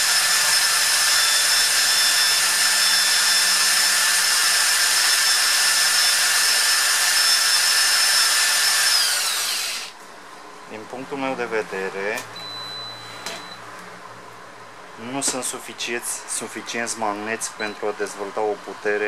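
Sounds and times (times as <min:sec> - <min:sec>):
cordless drill whining: 0:00.0 - 0:10.0.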